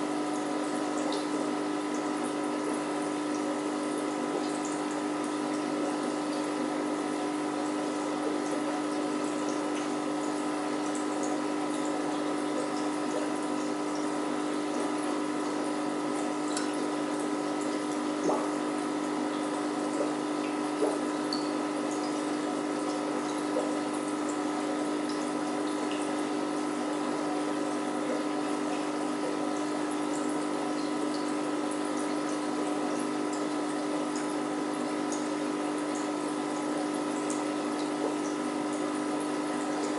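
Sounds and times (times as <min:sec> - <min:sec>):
aquarium pump hum: 0:00.0 - 0:39.9
water trickling and bubbling: 0:00.0 - 0:39.9.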